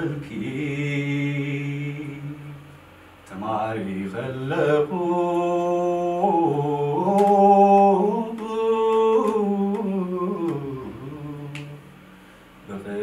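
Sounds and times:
man singing unaccompanied: 0.0s - 12.0s, 12.6s - 13.0s.

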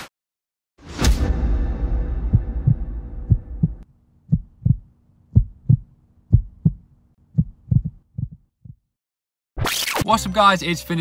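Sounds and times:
heartbeat thumps: 2.2s - 8.9s.

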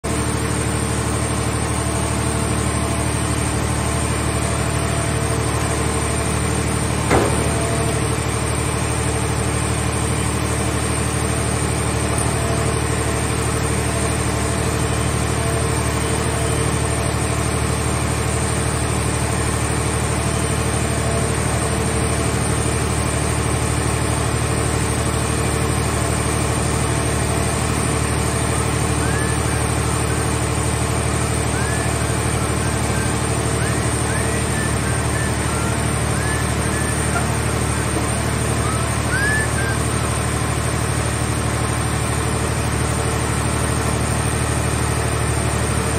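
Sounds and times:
hydraulic machinery humming: 0.1s - 45.9s
sharp metal knock: 7.1s - 7.9s.

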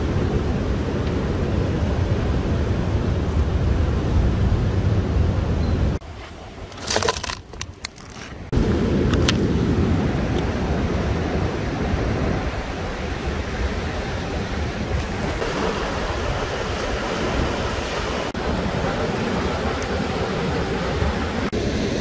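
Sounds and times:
wind noise on microphone: 0.0s - 22.0s
ocean surf breaking: 8.5s - 22.0s.

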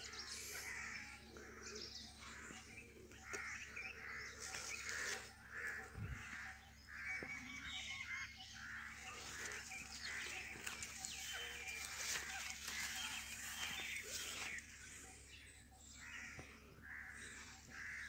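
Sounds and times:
crows cawing: 0.0s - 15.0s, 15.9s - 18.0s
small birds chirping: 0.0s - 18.0s.

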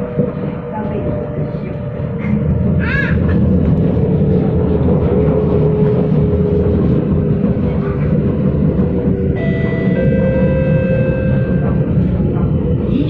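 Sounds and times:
train wheels rumbling on rail: 0.0s - 13.0s
steady high tones: 9.3s - 12.5s.

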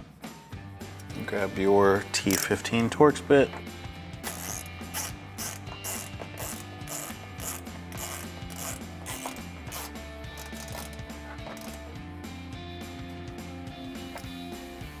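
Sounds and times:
background music: 0.0s - 15.0s
hand ratchet clicking: 2.2s - 2.7s, 4.2s - 11.9s.

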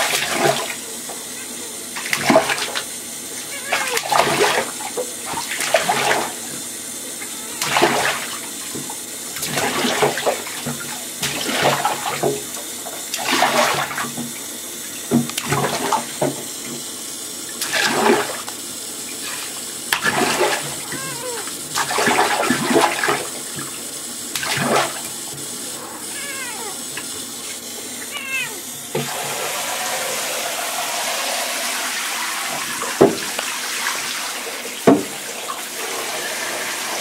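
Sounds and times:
child splashing in water: 0.0s - 2.8s, 3.4s - 6.4s, 7.2s - 8.4s, 19.2s - 23.3s, 24.4s - 25.0s
shower water running into bathtub: 0.0s - 37.0s.

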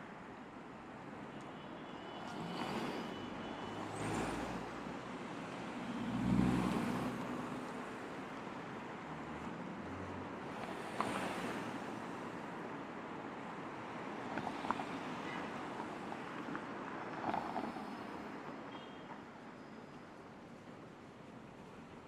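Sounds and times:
cars driving past: 2.0s - 19.3s.

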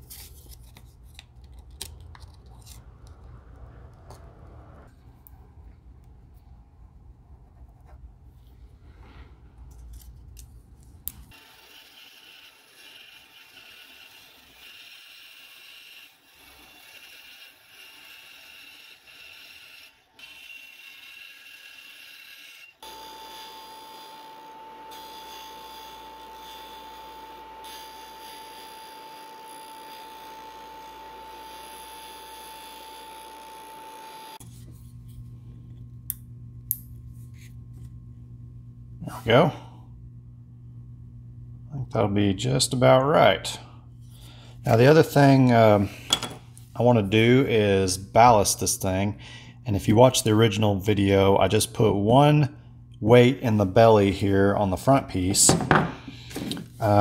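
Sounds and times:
band saw cutting plastic: 11.3s - 34.4s.

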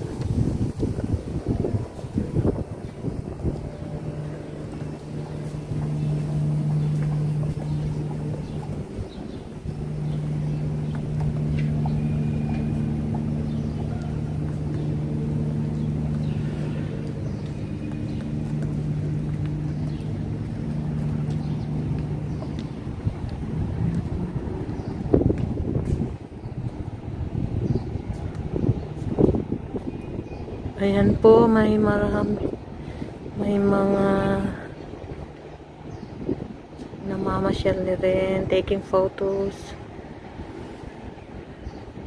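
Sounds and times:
machine hum: 0.0s - 30.8s.

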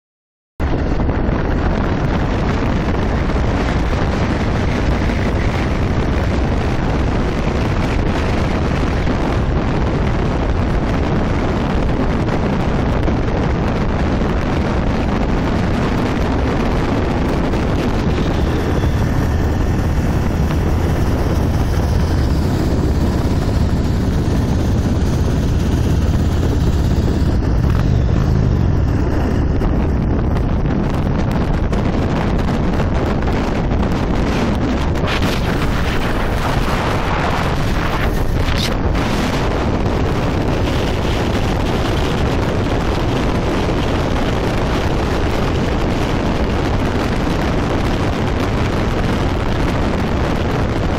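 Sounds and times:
wind noise on microphone: 0.6s - 50.9s
motorcycle engine: 0.7s - 48.6s.

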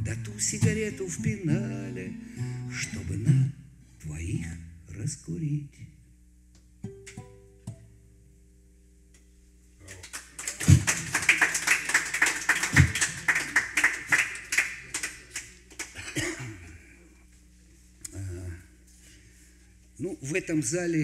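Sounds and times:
acoustic guitar note: 0.0s - 4.9s, 6.8s - 8.1s, 10.7s - 11.3s
audience applauding: 9.9s - 16.1s.

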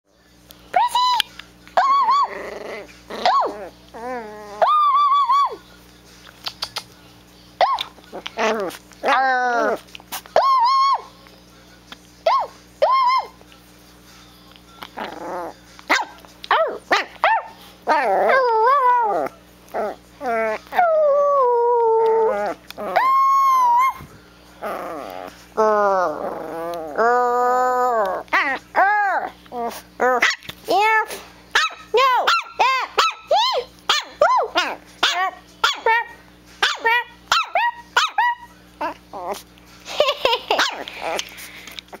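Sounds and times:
puppy yipping: 1.8s - 2.4s, 7.6s - 11.1s, 12.2s - 13.4s, 31.6s - 39.4s
puppy bark-whine: 1.8s - 2.5s, 3.1s - 5.7s, 7.6s - 11.1s, 12.2s - 13.4s, 14.8s - 21.5s, 22.2s - 24.0s, 27.8s - 30.6s, 31.5s - 39.4s, 40.0s - 42.0s
puppy growling: 1.8s - 5.6s, 7.6s - 11.2s, 14.6s - 31.2s, 34.3s - 42.0s.

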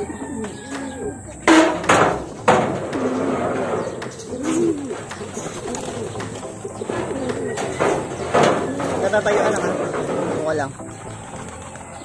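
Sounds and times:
pigeons cooing: 0.0s - 12.0s
sharp knocks: 1.5s - 4.2s.

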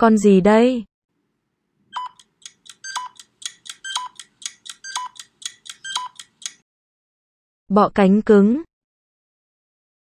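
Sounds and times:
electronic countdown jingle: 2.0s - 6.6s.

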